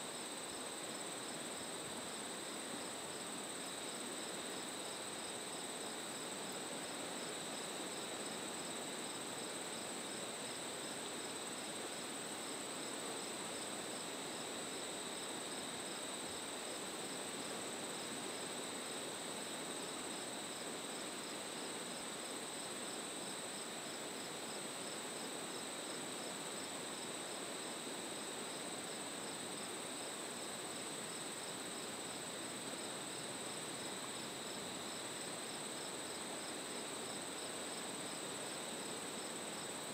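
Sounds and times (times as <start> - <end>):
crickets trilling: 7.2 - 39.9.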